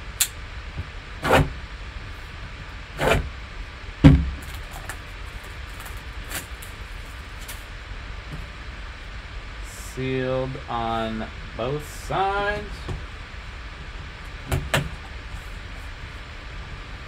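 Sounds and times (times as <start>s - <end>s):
cardboard box thumps: 4.0s - 4.5s.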